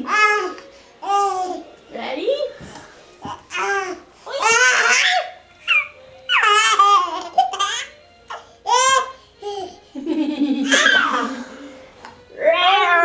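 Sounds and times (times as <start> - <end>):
toddler laughing and squealing: 3.5 - 7.9, 10.6 - 11.4.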